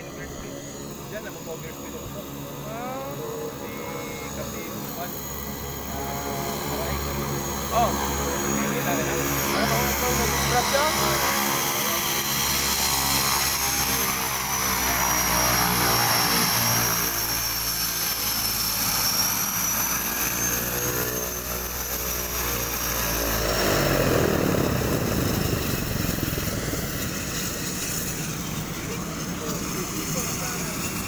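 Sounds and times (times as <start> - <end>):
propeller drone: 0.0 - 31.0
turboprop plane engine whine: 0.0 - 31.0
rush of air: 22.8 - 29.1.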